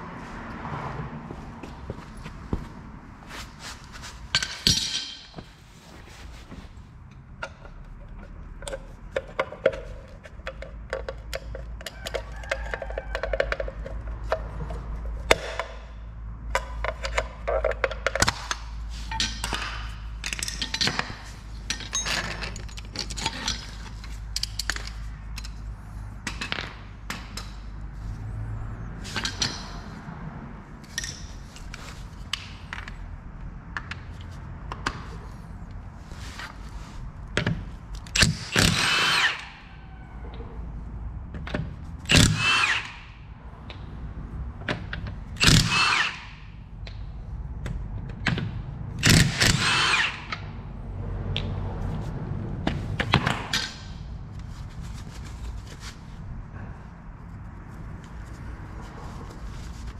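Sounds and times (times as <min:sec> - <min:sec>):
tools clicking and clattering: 0:04.3 - 0:05.5, 0:16.5 - 0:27.6, 0:29.1 - 0:30.0, 0:30.8 - 0:33.0
power tool whirring: 0:42.1 - 0:43.0, 0:45.4 - 0:46.3, 0:49.1 - 0:50.4.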